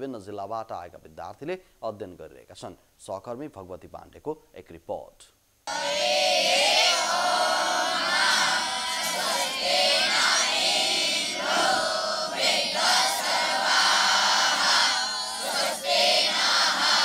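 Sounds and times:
boys chanting in unison: 5.7s - 17.0s.

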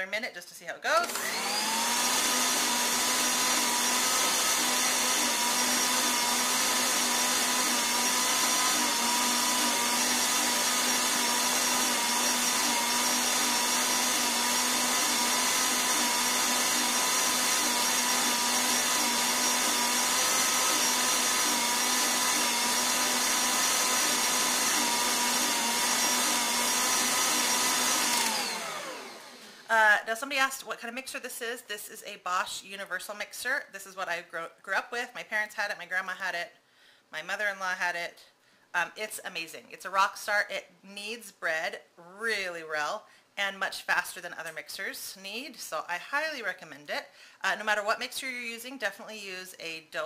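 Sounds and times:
stand mixer whining: 1.0s - 29.6s.

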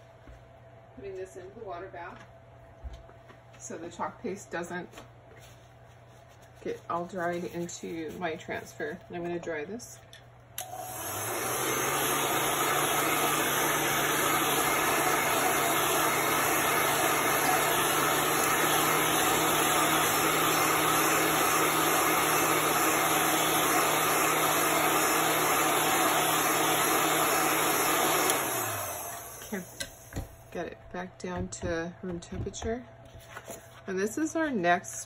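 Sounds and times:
heat gun fan whirring: 7.2s - 33.1s.

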